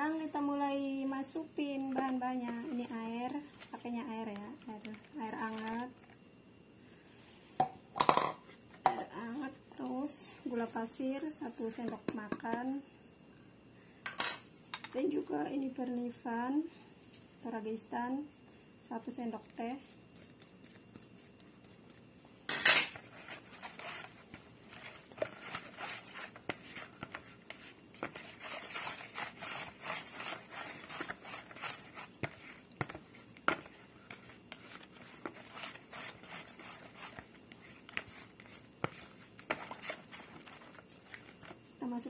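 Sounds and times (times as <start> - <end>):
spatula scraping plastic bowl: 22.9 - 41.6.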